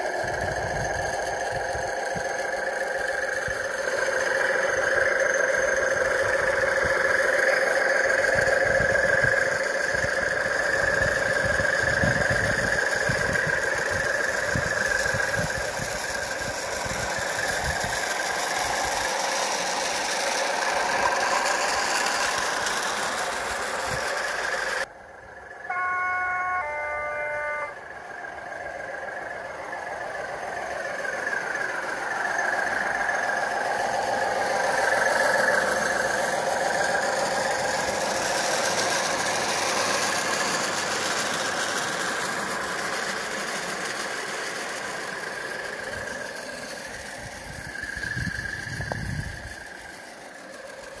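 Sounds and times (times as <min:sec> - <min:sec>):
model diesel engine running: 0:00.0 - 0:51.0
two-note train horn: 0:25.6 - 0:27.8.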